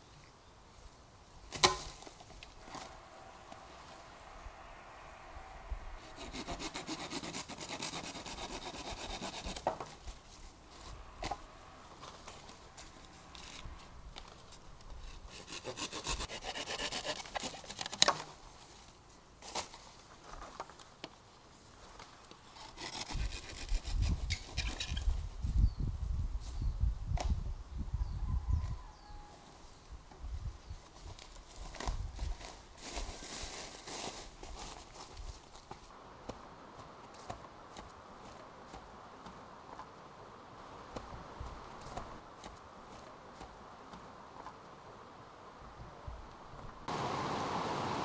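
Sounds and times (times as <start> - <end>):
rhythmic scraping strokes: 2.6 - 9.6.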